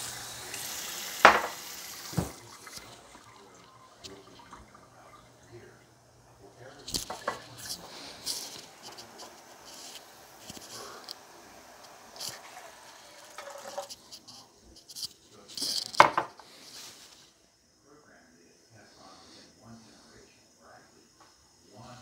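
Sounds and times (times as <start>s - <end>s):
pot clattering: 1.2s - 3.0s, 6.9s - 11.2s, 12.1s - 14.3s
clicks and knocks of kitchenware: 1.3s - 1.6s, 15.9s - 16.4s.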